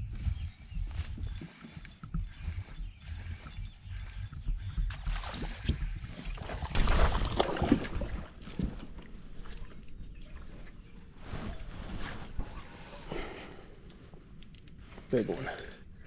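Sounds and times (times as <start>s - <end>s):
water splashing around kayak: 4.9s - 9.4s.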